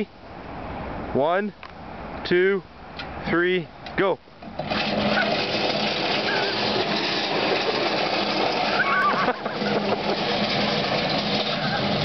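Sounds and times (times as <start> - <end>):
wheels rushing on wet pavement: 4.4 - 12.0
short high squeals: 4.7 - 9.4.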